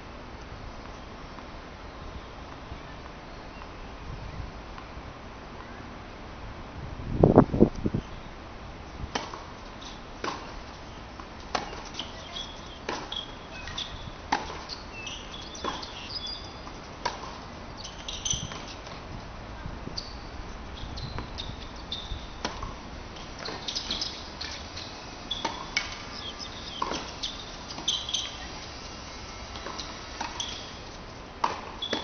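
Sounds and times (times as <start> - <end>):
tennis ball popping off rackets: 9.1 - 19.1, 21.1 - 32.0
shoes squeaking on court: 9.2 - 19.1, 19.8 - 32.0.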